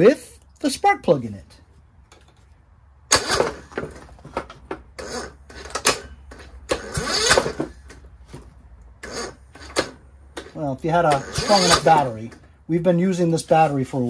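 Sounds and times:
engine cranking on starter: 0:03.1 - 0:04.1, 0:04.9 - 0:08.0, 0:09.0 - 0:12.5.

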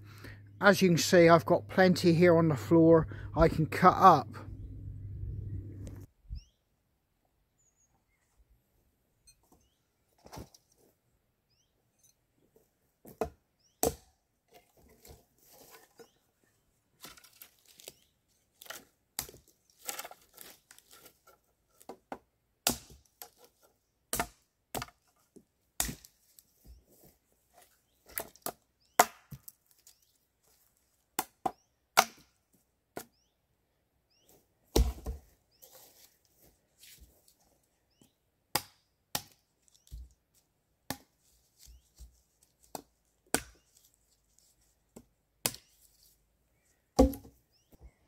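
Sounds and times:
wood chopping: 0:13.1 - 0:14.1, 0:21.8 - 0:23.4, 0:24.1 - 0:25.0, 0:25.8 - 0:26.2, 0:28.1 - 0:29.6, 0:31.2 - 0:32.3, 0:34.7 - 0:35.3, 0:38.5 - 0:39.4, 0:40.9 - 0:41.1, 0:42.7 - 0:43.6, 0:45.4 - 0:45.7, 0:47.0 - 0:47.4
branches rustling: 0:14.5 - 0:21.8, 0:29.4 - 0:31.1, 0:35.0 - 0:37.7, 0:39.3 - 0:40.5, 0:41.1 - 0:47.1.

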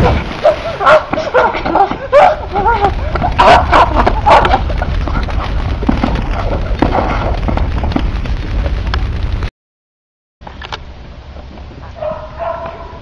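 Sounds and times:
fire crackling and popping: 0:00.0 - 0:09.5
low rumble: 0:00.0 - 0:09.5.

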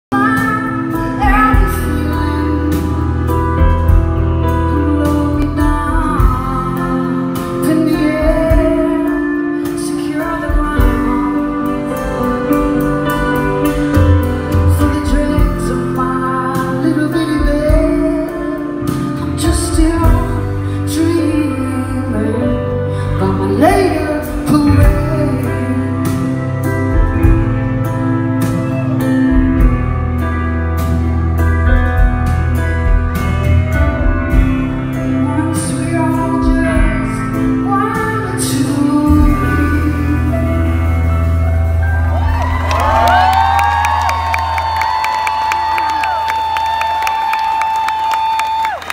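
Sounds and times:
woman singing: 0:00.1 - 0:27.3, 0:32.8 - 0:41.2
electric guitar: 0:00.1 - 0:48.9
live band music: 0:00.1 - 0:48.9.

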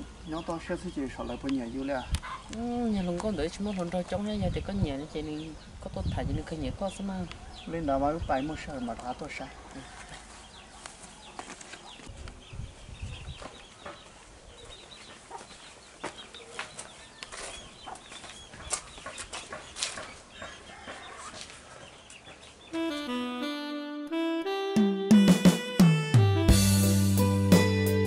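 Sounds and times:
chickens clucking faintly: 0:13.1 - 0:22.6.

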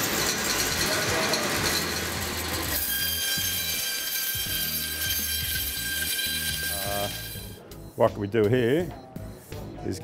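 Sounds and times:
band saw cutting meat: 0:00.0 - 0:07.6.

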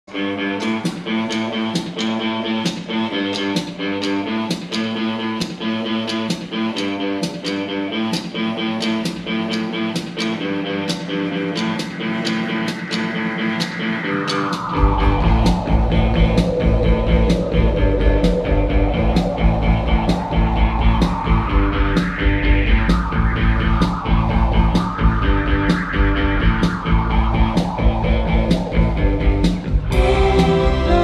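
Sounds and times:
live band playing: 0:00.1 - 0:31.0
falling pitch glide: 0:10.9 - 0:31.0.

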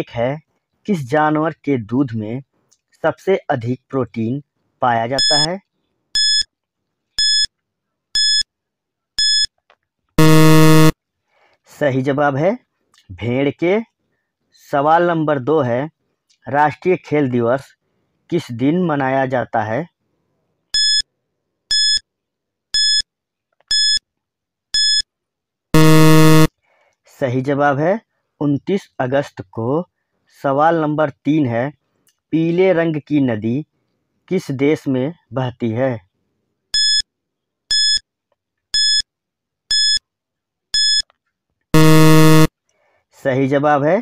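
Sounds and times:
high electronic beeps: 0:05.2 - 0:05.5, 0:10.2 - 0:10.9, 0:25.8 - 0:26.5, 0:41.8 - 0:42.5.

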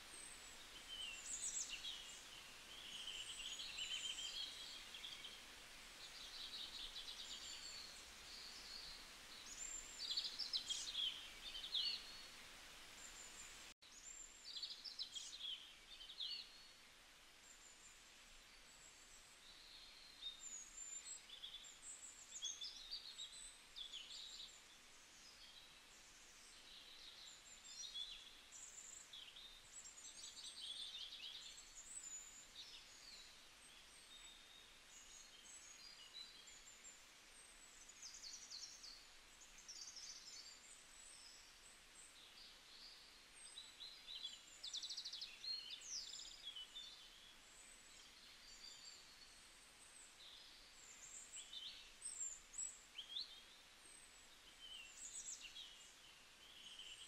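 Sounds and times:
small birds chirping: 0:00.0 - 0:57.0
soft hiss: 0:00.0 - 0:57.0.

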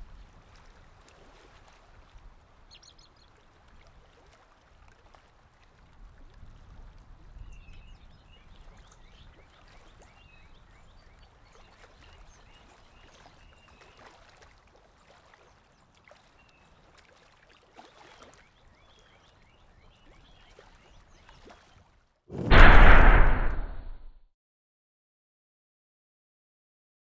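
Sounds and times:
water lapping softly: 0:00.0 - 0:22.2.

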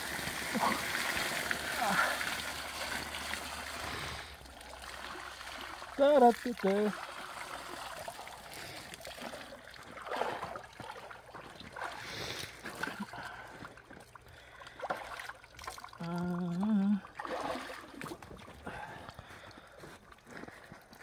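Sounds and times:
water sloshing and splashing: 0:00.0 - 0:21.0
man calling out: 0:06.0 - 0:07.0.

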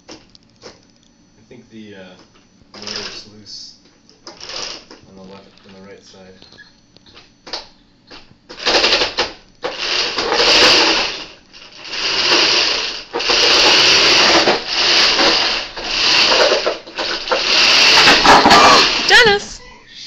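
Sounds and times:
robot drive motors and chain: 0:08.6 - 0:19.4.

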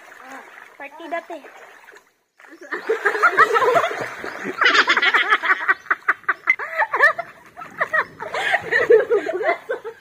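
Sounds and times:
women laughing: 0:02.5 - 0:10.0.

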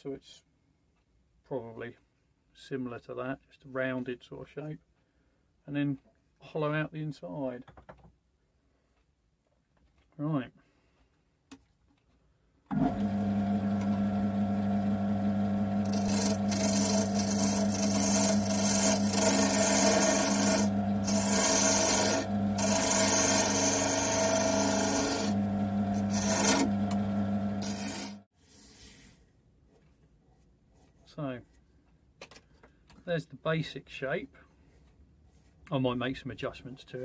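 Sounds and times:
lathe motor humming: 0:12.7 - 0:28.2
turning tool scraping wood: 0:12.7 - 0:29.2.

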